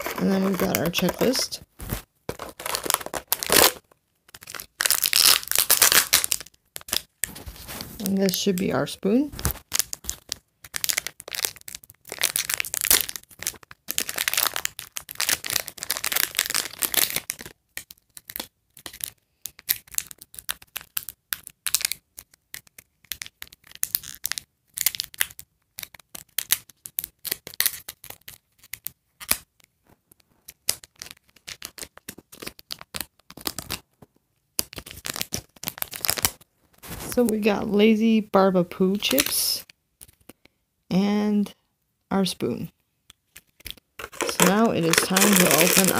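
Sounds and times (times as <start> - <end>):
plastic packets tearing and crinkling: 0.0 - 8.7, 9.4 - 29.5, 30.4 - 33.9, 34.6 - 36.5, 43.3 - 45.9.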